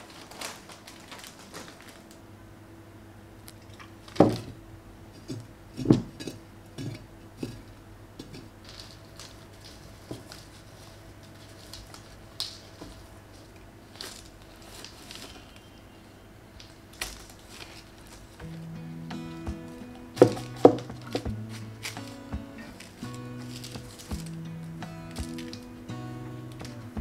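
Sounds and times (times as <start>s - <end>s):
soil and paper rustling: 0.0s - 2.2s, 6.8s - 27.0s
flower pots knocked on table: 19.5s - 22.4s.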